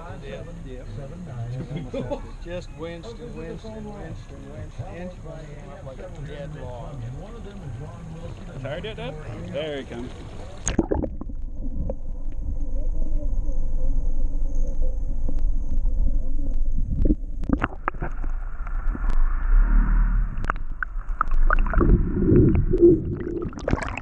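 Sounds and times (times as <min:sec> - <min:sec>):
steady low rumble: 0:10.2 - 0:24.0.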